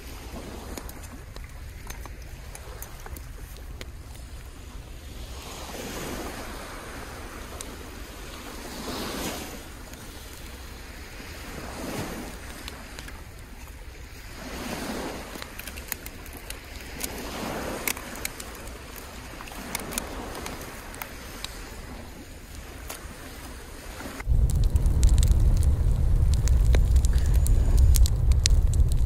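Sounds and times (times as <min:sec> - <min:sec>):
sea waves breaking on shore: 0:00.0 - 0:29.0
sharp clicks and cracks: 0:00.7 - 0:04.5, 0:15.3 - 0:21.6, 0:24.2 - 0:29.0.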